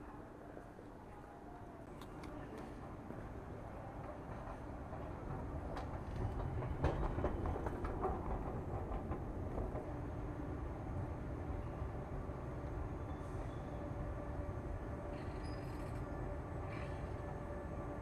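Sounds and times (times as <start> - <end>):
train low rumble: 0.0 - 18.0
train wheels clattering: 4.0 - 10.0.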